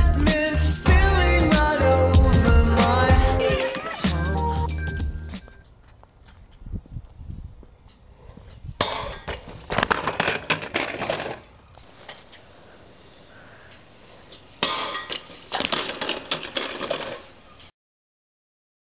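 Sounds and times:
bike clattering on metal rail: 8.8s - 11.5s, 14.6s - 17.4s.

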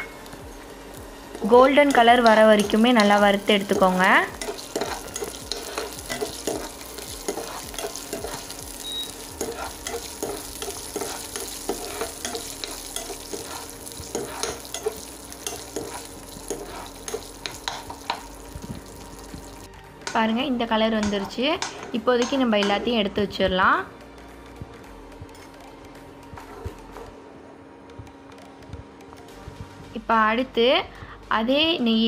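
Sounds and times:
nuts sizzling in a pan: 0.0s - 23.4s
metal spoon scraping a pan: 1.4s - 18.3s.

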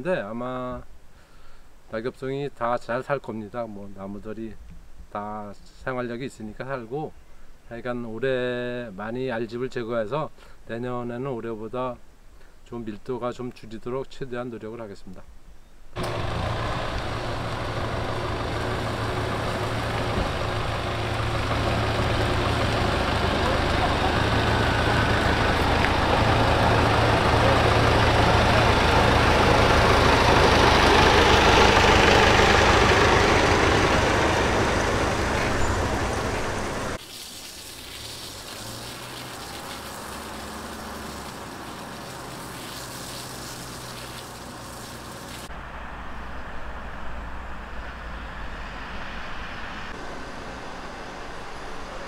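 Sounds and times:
truck engine hum: 16.0s - 52.0s
high-pressure water spray hiss: 36.7s - 45.5s.

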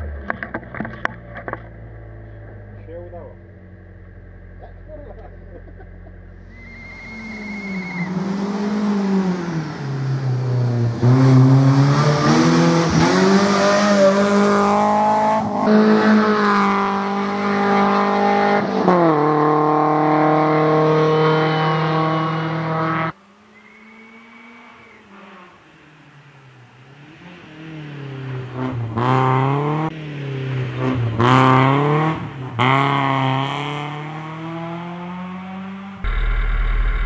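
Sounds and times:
rally car engine revving: 0.0s - 37.0s
faint distant engine: 23.2s - 28.5s.

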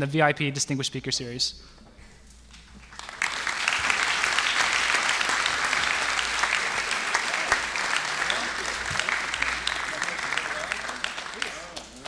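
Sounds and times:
audience applauding: 2.7s - 12.0s.

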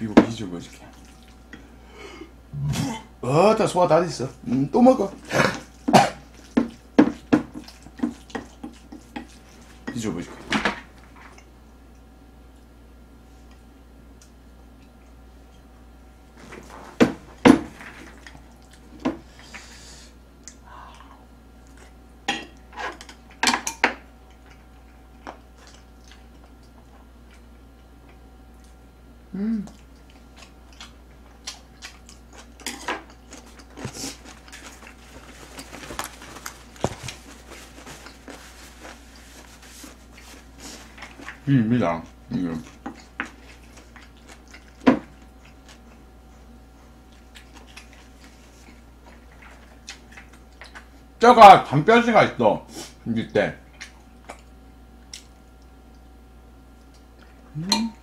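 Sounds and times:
person chewing: 5.3s - 9.8s, 24.2s - 28.8s, 29.6s - 51.0s.

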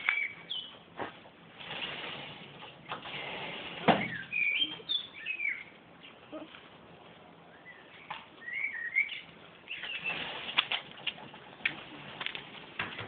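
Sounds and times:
songbird warbling: 4.1s - 5.8s, 7.6s - 10.2s.

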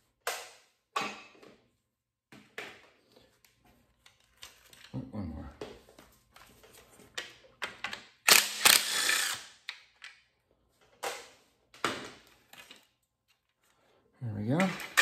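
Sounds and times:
tool knocks and clatters: 0.9s - 1.6s
cordless power tool spinning bolts: 8.3s - 9.7s.

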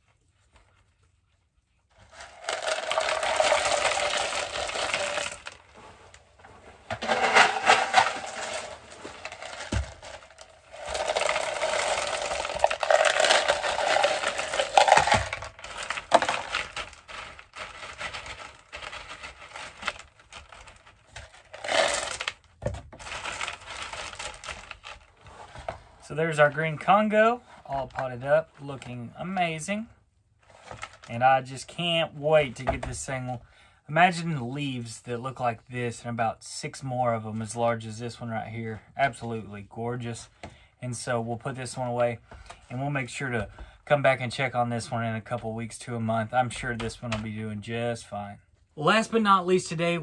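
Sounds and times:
clay pebbles rattling into pot: 1.9s - 6.1s, 6.8s - 25.6s, 30.5s - 31.3s
single pebbles clicking: 7.3s - 17.0s.

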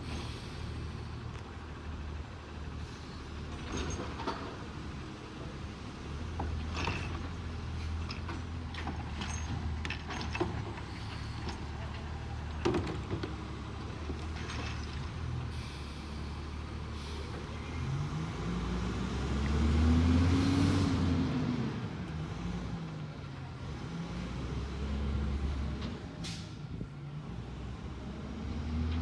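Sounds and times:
air brakes hissing: 0.0s - 1.2s, 15.5s - 17.7s, 26.2s - 26.8s
garbage truck engine pulling away: 0.0s - 29.0s.

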